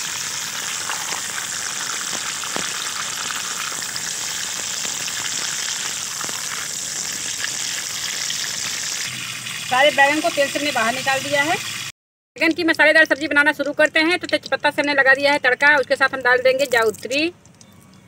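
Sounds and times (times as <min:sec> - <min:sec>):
eggplants sizzling in hot oil: 0:00.0 - 0:11.9.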